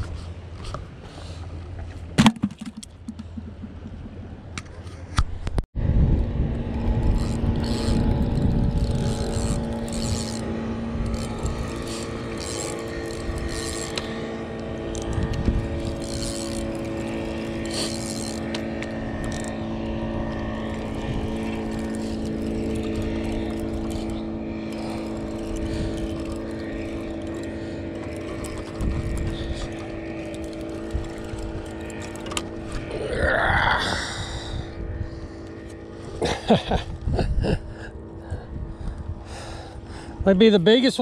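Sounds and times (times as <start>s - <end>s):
motorboat engine droning: 0.0s - 5.2s, 5.8s - 41.0s
spinning reel being cranked: 6.7s - 19.6s, 20.3s - 33.4s.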